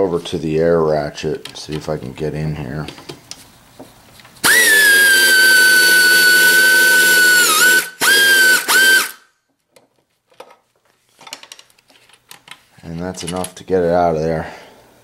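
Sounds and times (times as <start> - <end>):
air ratchet whining: 4.4 - 9.2.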